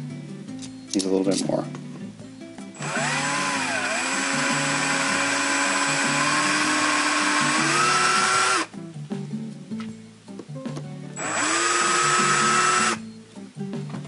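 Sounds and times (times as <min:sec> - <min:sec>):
cordless drill motor whine: 0:02.8 - 0:08.7, 0:11.2 - 0:13.0.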